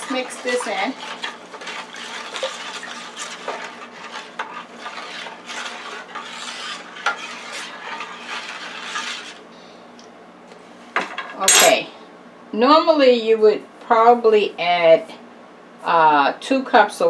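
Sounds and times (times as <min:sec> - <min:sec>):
utensil scraping metal pan: 0:00.0 - 0:09.4.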